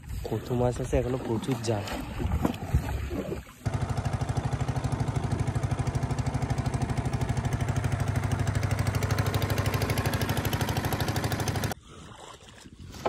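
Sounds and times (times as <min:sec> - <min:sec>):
boat engine chugging: 0:03.6 - 0:11.8.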